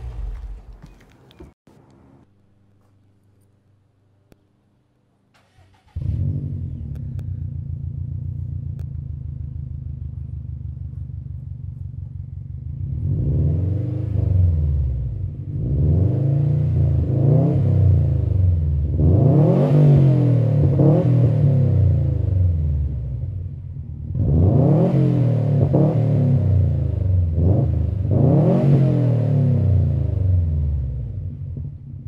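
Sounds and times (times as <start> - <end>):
car engine revving: 0.0 - 1.2, 5.4 - 10.4, 12.6 - 23.1, 24.0 - 31.6
car engine starting and idling: 0.0 - 2.1, 5.3 - 15.6.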